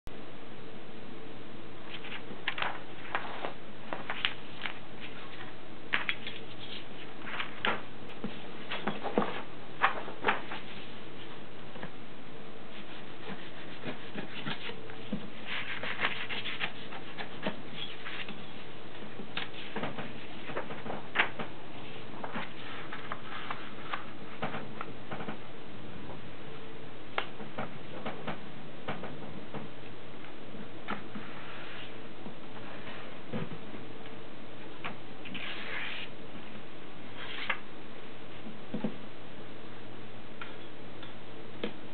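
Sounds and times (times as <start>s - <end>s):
background hiss: 0.1s - 41.9s
paper rustling and folding: 1.8s - 11.9s, 12.7s - 25.4s, 34.8s - 36.1s, 37.1s - 37.6s.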